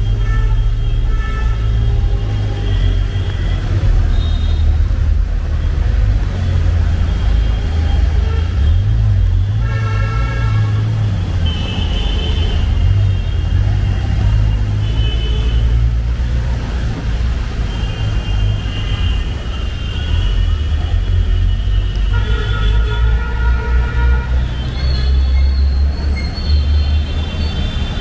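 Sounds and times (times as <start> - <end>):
city road traffic rumble: 0.0 - 28.0
vehicle horns: 7.2 - 16.0, 17.6 - 28.0.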